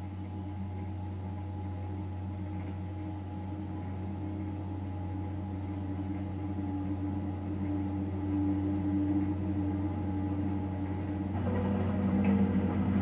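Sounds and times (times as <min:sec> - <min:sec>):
loader engine running: 0:00.0 - 0:13.0.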